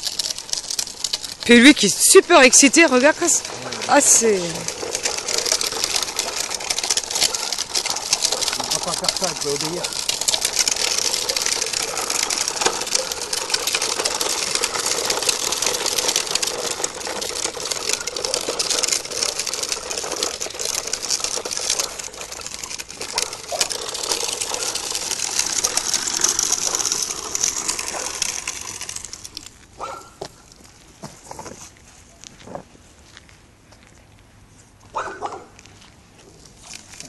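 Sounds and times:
plastic wheels rattling on gravel: 0.0 - 34.2, 35.1 - 37.0
footsteps crunching on gravel: 21.5 - 37.0.

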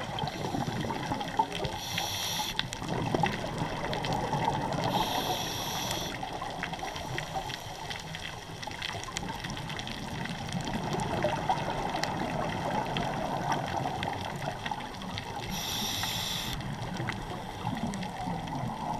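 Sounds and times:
bubbling water: 0.0 - 1.8, 2.7 - 5.3, 6.1 - 15.5, 16.6 - 18.9
scuba regulator hissing: 1.8 - 2.6, 4.9 - 6.2, 15.5 - 16.6.

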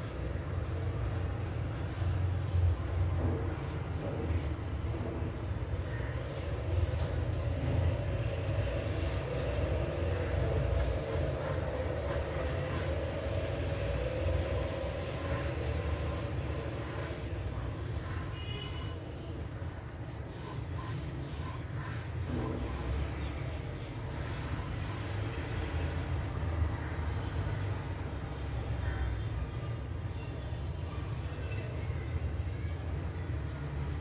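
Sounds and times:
pencil scratching on paper: 0.0 - 26.8.

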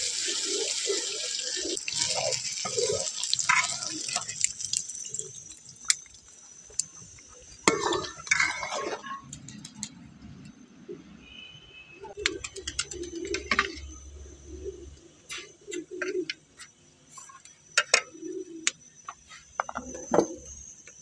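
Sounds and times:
pigeon cooing: 0.1 - 4.2, 12.1 - 16.7, 17.8 - 18.8.

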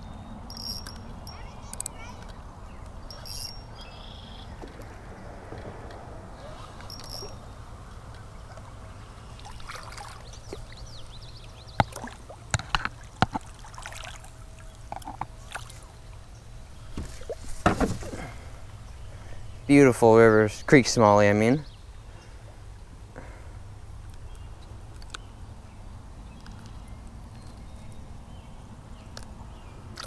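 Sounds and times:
running water: 6.5 - 18.8
fish splashing and thrashing: 8.2 - 16.2, 16.8 - 18.8.

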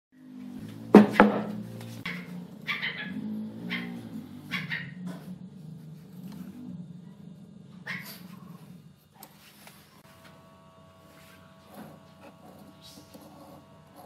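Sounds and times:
low hum: 0.2 - 14.0
wood block knocking on workbench: 0.9 - 1.6.

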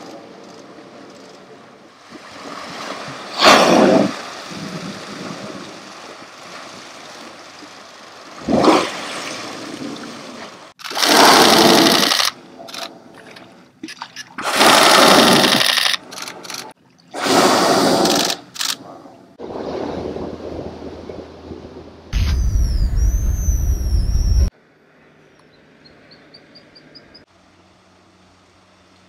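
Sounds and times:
soft water wash: 0.0 - 10.8
whales blowing: 2.0 - 7.4
loud rush of noise: 22.2 - 24.5.

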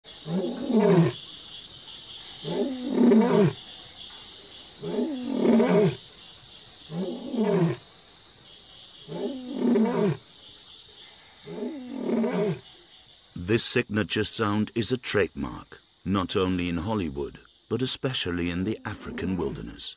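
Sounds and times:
lion roaring: 2.4 - 3.6, 4.8 - 6.0, 6.9 - 7.8, 9.1 - 10.2, 11.5 - 12.6.

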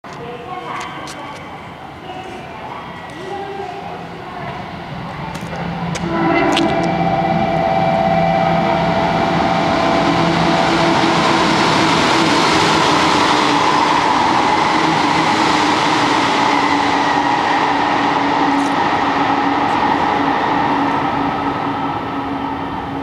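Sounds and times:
train passing at speed: 0.1 - 23.0
humming tones: 5.9 - 13.1.

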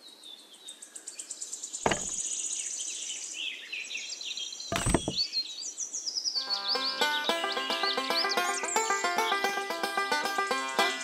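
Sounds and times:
small birds chirping: 0.0 - 11.0
dull thumps: 1.9 - 2.2, 4.7 - 5.2.

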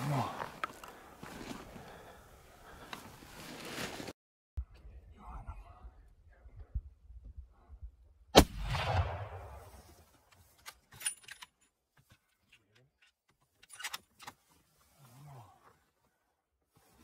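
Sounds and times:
rifle shot echoing: 8.4 - 9.7.

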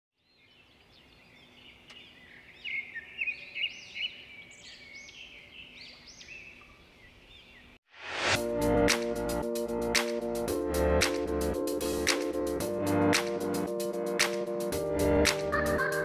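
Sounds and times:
birds chirping: 0.2 - 7.8
rising sweep: 7.9 - 15.5
electronic music with steady beat: 8.4 - 16.0.

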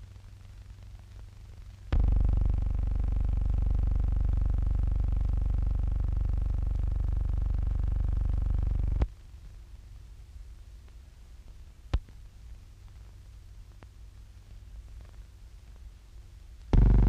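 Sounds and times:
loud low hum: 1.9 - 9.1, 16.7 - 17.0.

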